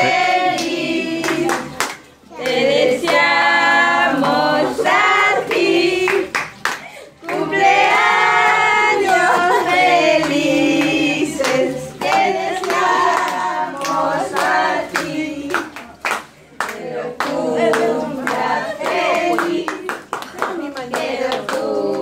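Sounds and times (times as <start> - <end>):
hand-clapping: 0.0 - 3.3, 5.5 - 7.5, 10.2 - 22.0
group singing birthday song: 0.0 - 22.0.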